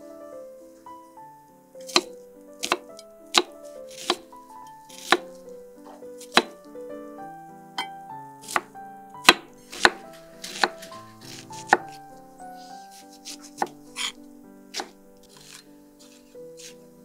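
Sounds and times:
knife chopping on wooden board: 1.8s - 4.3s, 4.9s - 6.6s, 7.8s - 12.0s, 12.7s - 16.8s.

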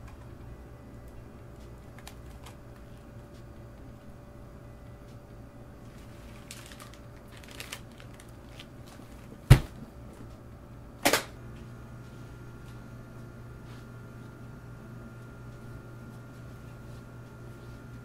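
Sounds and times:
low room hum: 0.0s - 18.0s
sharp snap: 11.0s - 11.4s.

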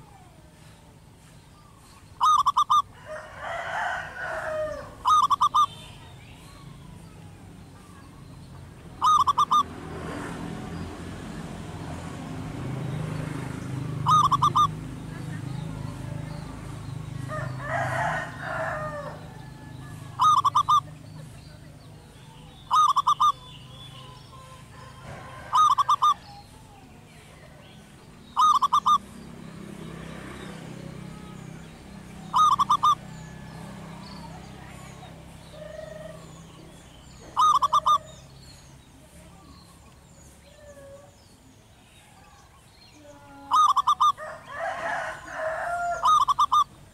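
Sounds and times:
dove cooing: 2.2s - 5.9s, 8.9s - 9.8s, 12.8s - 16.6s, 17.2s - 27.6s, 28.2s - 29.6s, 30.4s - 38.3s, 43.3s - 46.9s.

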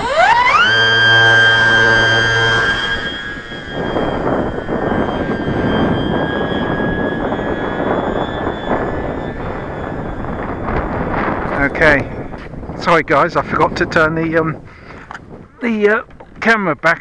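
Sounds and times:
electric motor high whine: 0.0s - 13.0s
wind buffeting microphone: 0.0s - 17.0s.

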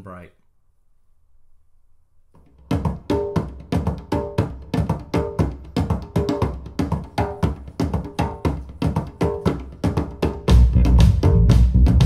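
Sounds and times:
music over loudspeakers: 2.7s - 12.0s.

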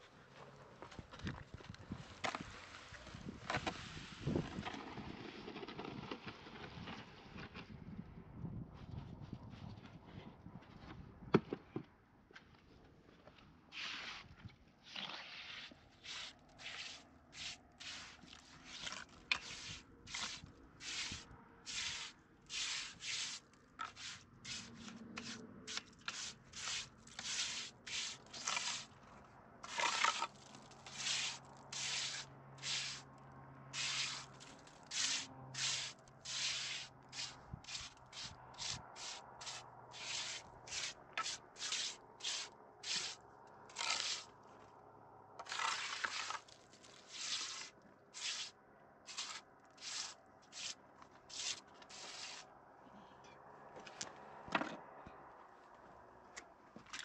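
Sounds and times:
short rubbing strokes: 15.3s - 28.9s, 30.9s - 33.0s, 33.8s - 43.2s, 47.1s - 48.5s, 49.1s - 52.4s.

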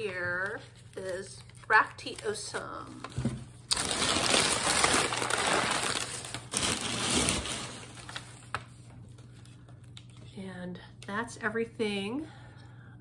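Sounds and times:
paper rustling and crumpling: 0.0s - 10.2s.

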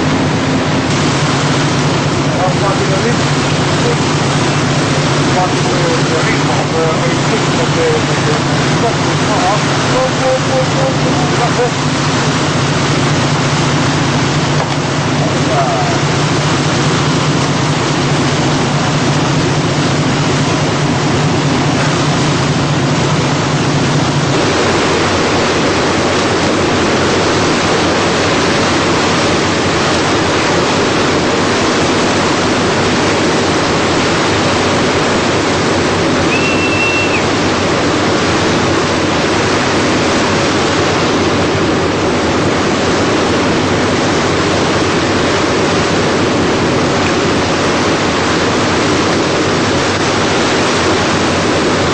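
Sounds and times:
low hum: 0.0s - 51.9s
seawater rushing along ship hull: 0.0s - 51.9s
short high beep: 36.2s - 37.3s.

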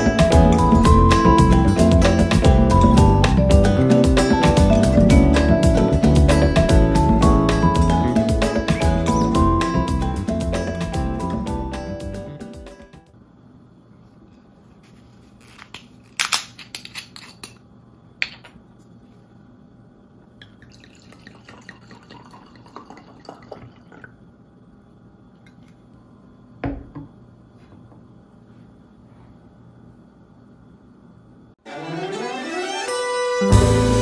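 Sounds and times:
wine pouring into glass: 20.4s - 24.2s
bottle set down on wooden table: 26.6s - 27.1s.

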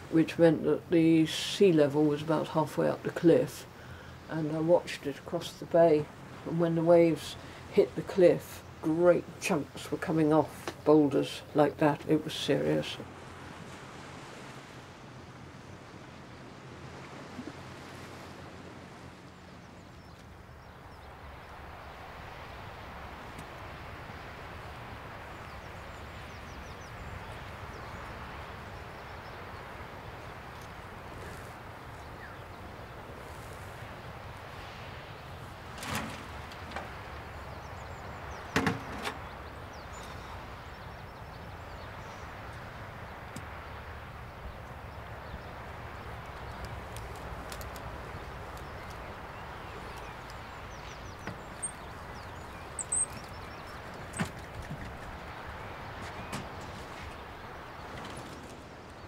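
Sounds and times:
rushing hiss of wind: 13.0s - 59.0s.

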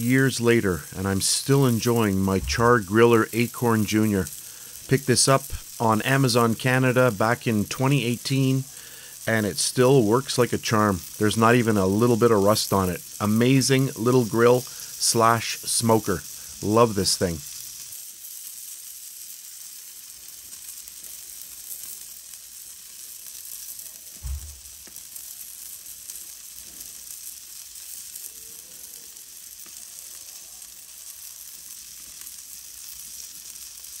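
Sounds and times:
sausages sizzling on grill: 0.0s - 34.0s
low thump: 24.2s - 24.8s.

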